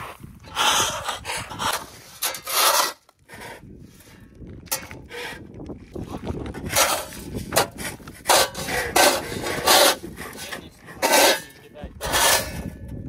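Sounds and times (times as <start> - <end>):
grain scraped over asphalt: 0.0 - 4.3.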